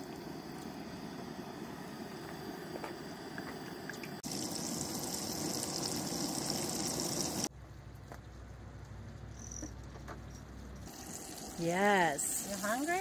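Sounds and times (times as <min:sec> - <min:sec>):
fish fillets sizzling in oil: 0:04.2 - 0:07.5.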